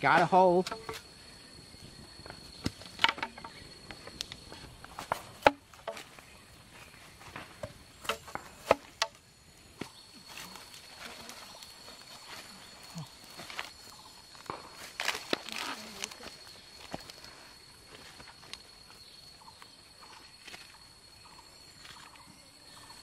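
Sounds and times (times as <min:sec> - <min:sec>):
bamboo and wooden stick knocking: 0:00.0 - 0:01.1, 0:02.2 - 0:06.2, 0:07.4 - 0:09.2
high-pitched insect drone: 0:00.0 - 0:07.1, 0:07.7 - 0:23.0.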